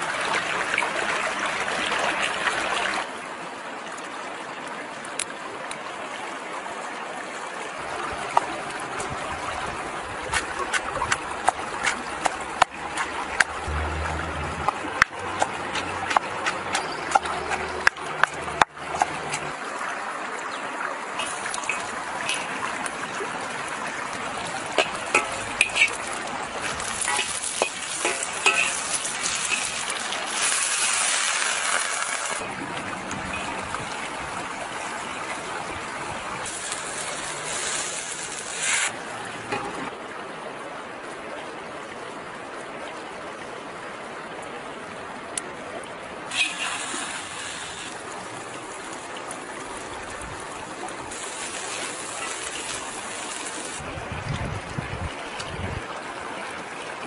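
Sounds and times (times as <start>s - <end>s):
food sizzling in a wok: 26.7s - 32.4s, 36.4s - 38.9s, 46.3s - 48.1s, 51.1s - 53.8s
stirring clinks and scrapes: 27.0s - 29.8s.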